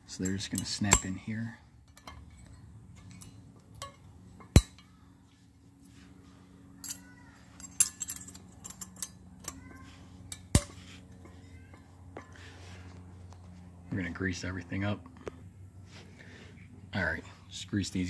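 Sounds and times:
light metallic clinks: 0.1s - 5.1s, 6.7s - 12.4s
metal clips snapping: 1.9s - 4.8s.

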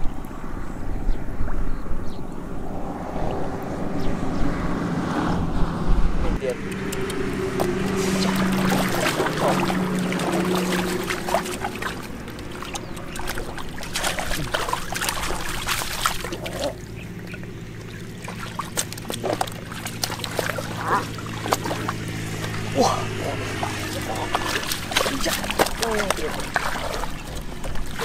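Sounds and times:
low hum: 0.0s - 28.0s
water splashing and dripping: 6.7s - 28.0s.

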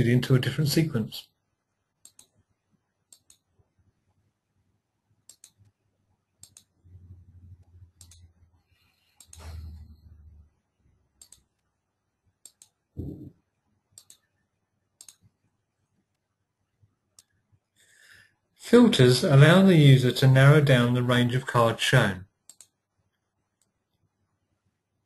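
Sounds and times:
computer mouse clicks: 2.0s - 2.4s, 3.1s - 3.5s, 5.2s - 5.8s, 6.4s - 6.8s, 7.6s - 8.4s, 9.0s - 9.7s, 11.2s - 11.7s, 12.4s - 12.8s, 13.9s - 14.3s, 15.0s - 15.4s, 22.4s - 22.8s.

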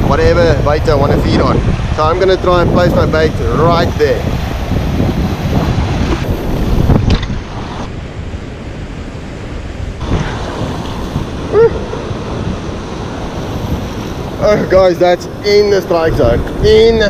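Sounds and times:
wind buffeting microphone: 0.0s - 17.0s
surf breaking over rocks: 9.2s - 17.0s.

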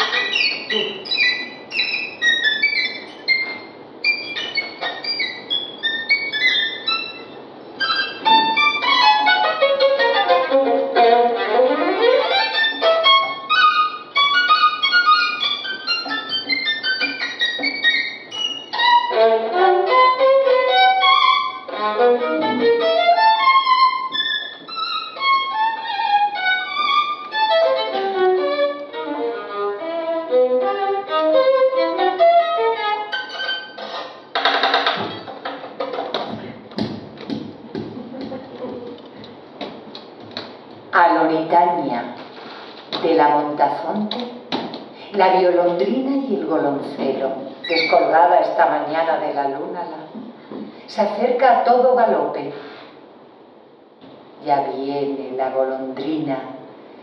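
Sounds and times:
solo violin playing: 0.0s - 34.0s.

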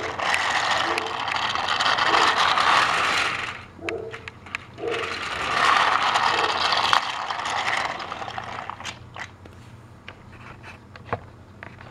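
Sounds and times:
toy train motor running: 0.0s - 9.3s.

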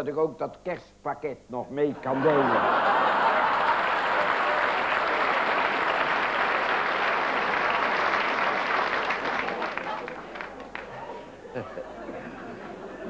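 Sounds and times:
audience laughing: 2.0s - 13.0s
audience applauding: 2.3s - 11.4s.

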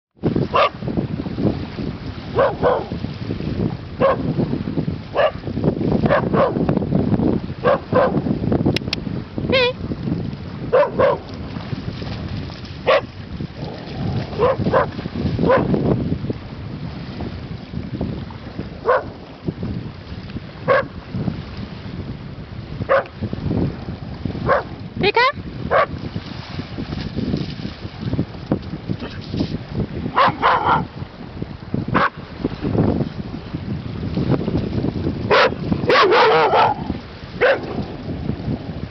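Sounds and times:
wind rumble on microphone: 0.2s - 38.9s
dog barking: 0.5s - 0.8s, 2.4s - 2.9s, 4.0s - 4.2s, 5.2s - 5.4s, 6.1s - 6.6s, 7.6s - 8.2s, 10.7s - 11.2s, 12.8s - 13.1s, 14.4s - 15.7s, 18.8s - 19.1s, 20.7s - 20.9s, 22.9s - 23.1s, 24.5s - 24.7s, 25.7s - 25.9s, 30.1s - 30.9s, 32.0s - 32.2s, 35.3s - 37.8s.

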